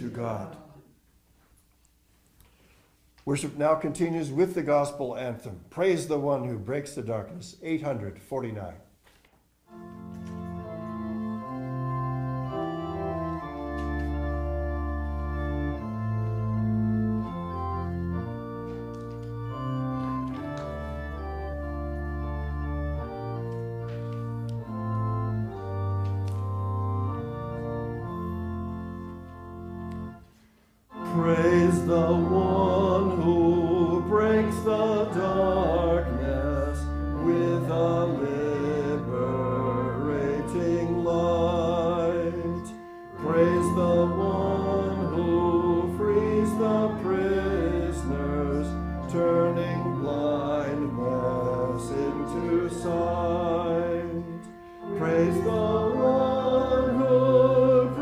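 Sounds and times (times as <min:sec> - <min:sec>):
voices singing: 0:00.0 - 0:01.0, 0:31.0 - 0:58.0
organ playing hymn chords: 0:00.0 - 0:01.2, 0:03.2 - 0:58.0.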